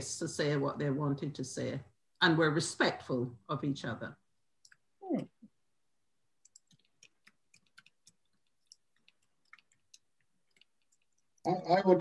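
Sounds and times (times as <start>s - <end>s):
faint clicks: 6.4s - 11.4s.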